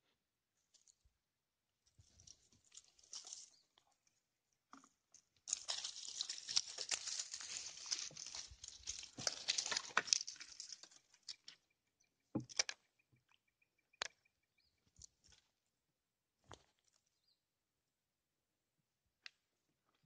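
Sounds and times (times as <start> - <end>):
dry leaves rustling and crackling: 2.1 - 3.6, 5.5 - 11.5.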